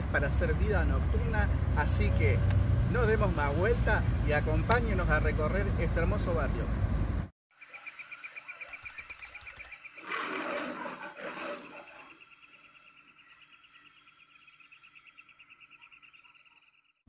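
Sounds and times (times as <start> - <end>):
insects chirping: 7.5 - 17.0
animal roar: 10.0 - 12.2.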